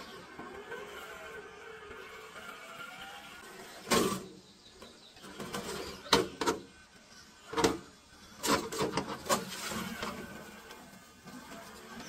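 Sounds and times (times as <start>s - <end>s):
electric motor and gearbox whirr: 0.0s - 12.0s
tyres scraping on stone: 7.6s - 12.0s.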